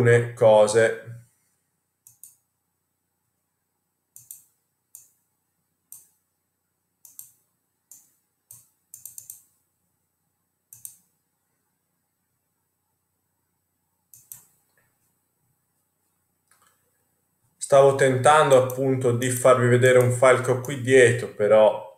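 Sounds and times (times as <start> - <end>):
computer mouse clicks: 2.0 - 2.5, 4.1 - 5.2, 5.9 - 6.2, 7.0 - 9.6, 10.7 - 11.2, 14.1 - 14.9.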